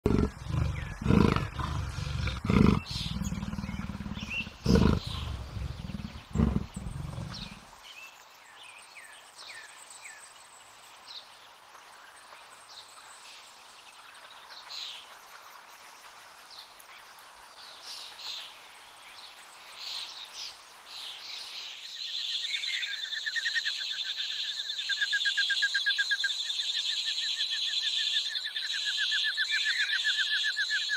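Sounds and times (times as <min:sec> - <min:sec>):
leopard growling: 0:00.0 - 0:07.6
birds chirping: 0:00.0 - 0:07.7.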